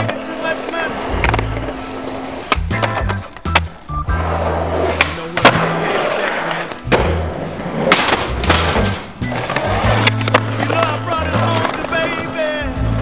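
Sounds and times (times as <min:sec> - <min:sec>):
skateboard wheels rolling on concrete: 0:00.0 - 0:13.0
background music with bass line: 0:01.1 - 0:13.0
skateboard clacks: 0:02.4 - 0:03.8, 0:04.8 - 0:12.4.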